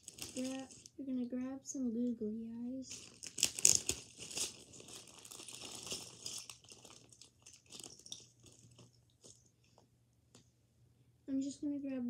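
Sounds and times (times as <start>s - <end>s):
plastic bag crinkling: 0.0s - 1.0s, 2.9s - 10.4s
small clicks and rattles: 2.9s - 10.5s.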